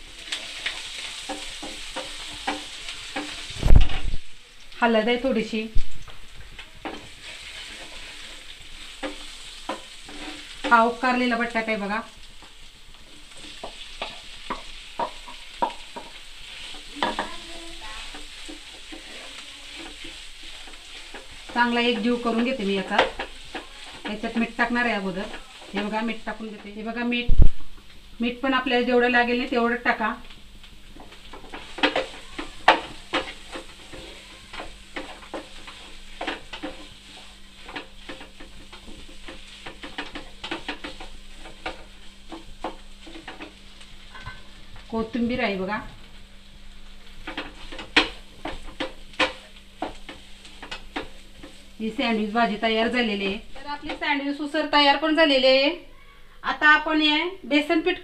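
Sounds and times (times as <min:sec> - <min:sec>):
frying sizzle: 0:00.0 - 0:58.0
spatula knocking and scraping pan: 0:00.2 - 0:04.0, 0:06.6 - 0:26.9, 0:30.8 - 0:45.3, 0:47.0 - 0:54.5.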